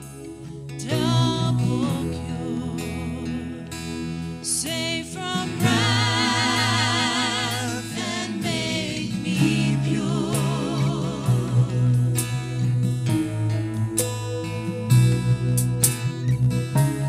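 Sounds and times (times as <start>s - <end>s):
guitar and bass accompaniment: 0.0s - 17.0s
singers singing together: 0.9s - 3.1s, 4.5s - 12.7s.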